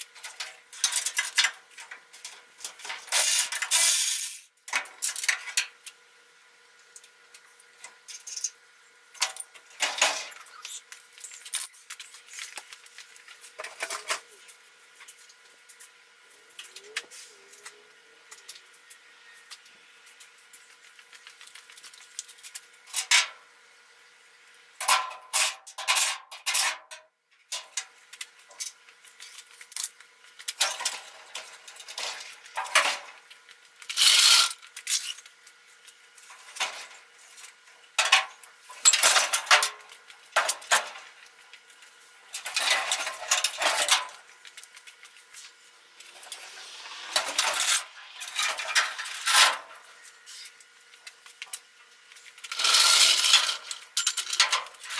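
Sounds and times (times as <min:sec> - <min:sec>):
metal clanking and scraping: 0:42.3 - 0:44.2, 0:45.3 - 0:50.5.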